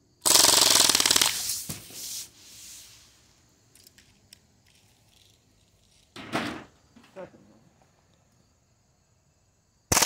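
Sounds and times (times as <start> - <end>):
bb rifle rapid fire: 0.2 - 1.5.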